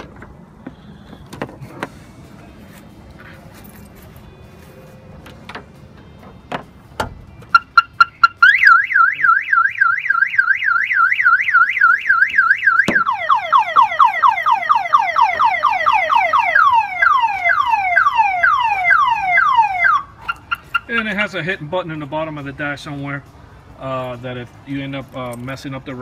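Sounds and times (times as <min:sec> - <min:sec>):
car alarm beeps: 0:07.4 - 0:21.0
car alarm siren: 0:07.5 - 0:21.1.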